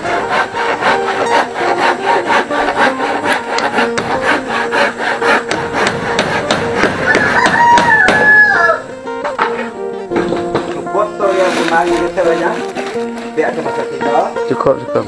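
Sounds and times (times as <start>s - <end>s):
hammer striking wood: 0.0s - 8.6s
rooster crowing: 7.0s - 9.0s.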